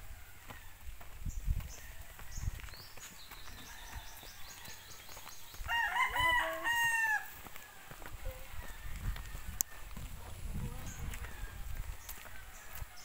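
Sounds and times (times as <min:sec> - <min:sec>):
rooster crowing: 0:03.5 - 0:05.0, 0:05.6 - 0:09.9, 0:10.7 - 0:13.0.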